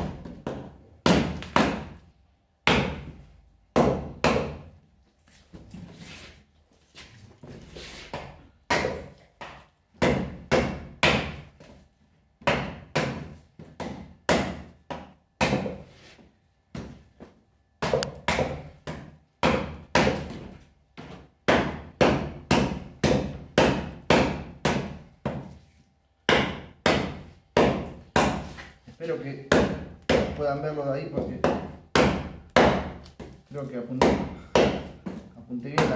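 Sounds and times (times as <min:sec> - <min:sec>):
knife chopping wood: 0:00.0 - 0:02.0, 0:02.6 - 0:04.7, 0:08.1 - 0:11.5, 0:12.4 - 0:15.8, 0:17.8 - 0:25.6, 0:26.3 - 0:28.6, 0:29.5 - 0:30.4, 0:31.1 - 0:33.4, 0:34.0 - 0:35.9.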